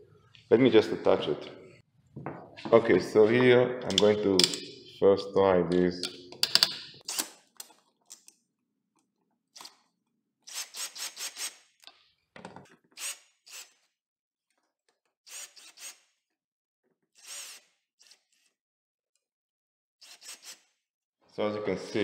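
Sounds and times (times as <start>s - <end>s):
cordless drill driving screw: 13.0s - 13.8s, 15.3s - 16.2s, 17.1s - 18.5s, 20.0s - 20.7s.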